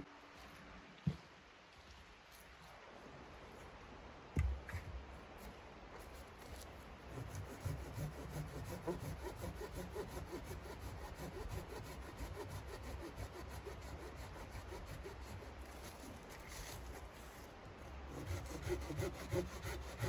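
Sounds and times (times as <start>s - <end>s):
hand saw cutting wood: 7.1s - 17.0s, 18.1s - 20.0s.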